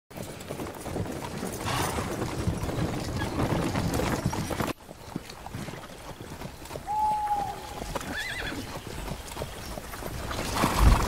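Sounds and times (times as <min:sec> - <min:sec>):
cart and harness rattling: 0:00.1 - 0:06.6
horse hooves clopping: 0:00.1 - 0:11.0.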